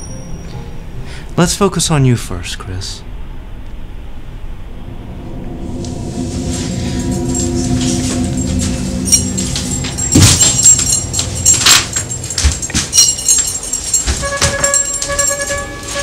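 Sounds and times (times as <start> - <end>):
sustained orchestral tones: 3.0 - 16.0
jangling metallic hits: 6.5 - 16.0.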